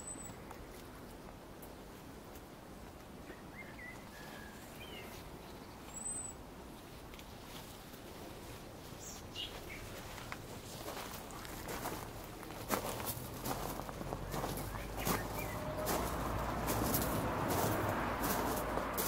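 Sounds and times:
faint background noise: 0:00.0 - 0:19.0
small bird chirps: 0:14.6 - 0:15.7.

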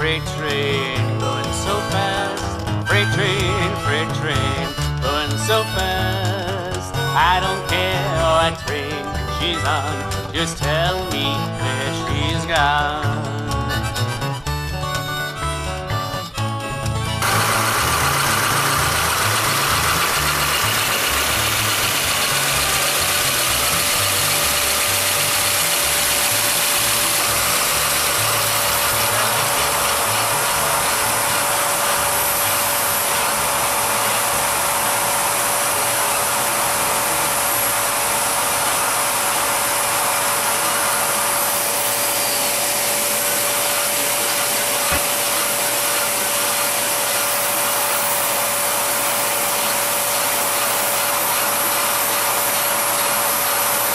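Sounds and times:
steady whine: 0:14.9 - 0:53.9
plastic gears clicking and rattling: 0:17.2 - 0:38.0.

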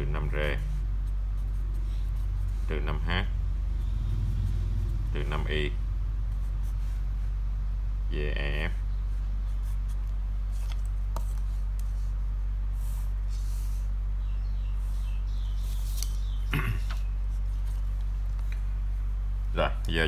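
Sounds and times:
low electrical hum: 0:00.0 - 0:20.0
marker scratching on paper: 0:00.2 - 0:03.1, 0:06.3 - 0:07.2, 0:09.4 - 0:14.0.

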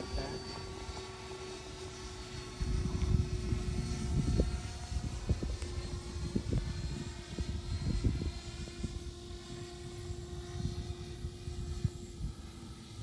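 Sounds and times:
ducted fan jet whine: 0:00.0 - 0:13.0.

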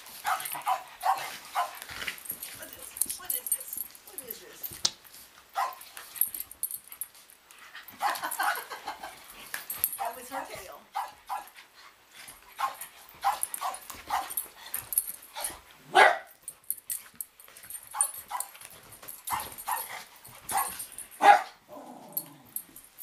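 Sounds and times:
dogs barking and yipping: 0:00.0 - 0:03.8, 0:05.4 - 0:23.0.

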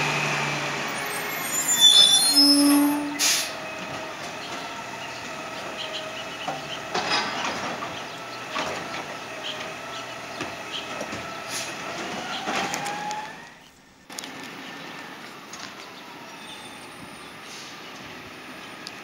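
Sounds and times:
diesel engine running: 0:00.0 - 0:19.0
trash cart banging: 0:02.7 - 0:13.0.

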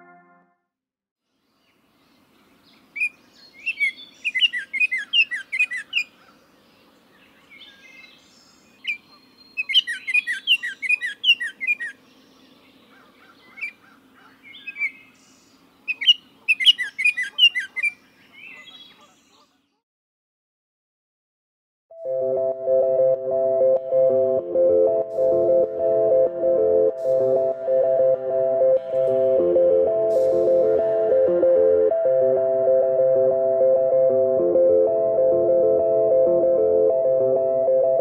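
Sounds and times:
songbird chirping: 0:01.3 - 0:19.8.

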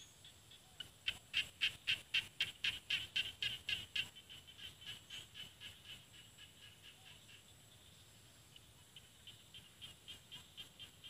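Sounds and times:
frog calling: 0:00.0 - 0:11.0.

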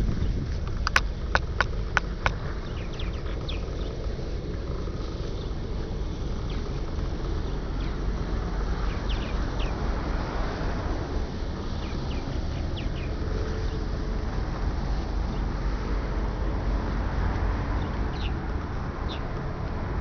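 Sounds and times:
steady low rumble: 0:00.0 - 0:20.0
high bird chirps: 0:02.6 - 0:04.0.

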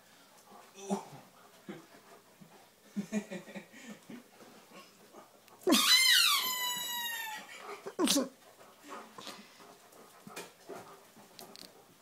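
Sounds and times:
dog whining: 0:05.6 - 0:08.2.

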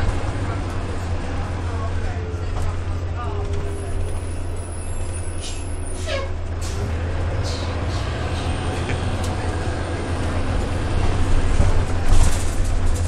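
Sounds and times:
bus engine rumble: 0:00.0 - 0:13.0
sharp clicks and rattles: 0:11.5 - 0:13.0.

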